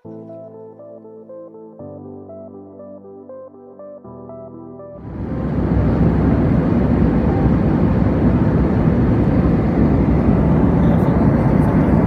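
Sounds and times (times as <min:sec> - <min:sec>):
background music: 0:00.0 - 0:10.6
jet airliner cabin noise: 0:05.0 - 0:12.0.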